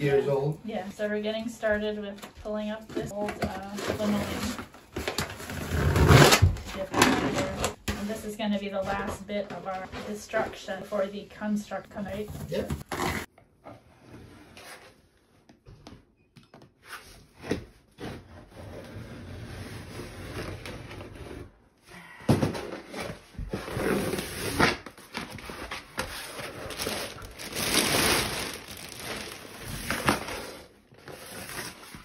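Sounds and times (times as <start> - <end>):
linoleum scraping and tearing: 2.9 - 8.2, 11.9 - 15.3, 16.8 - 21.7, 22.4 - 32.0.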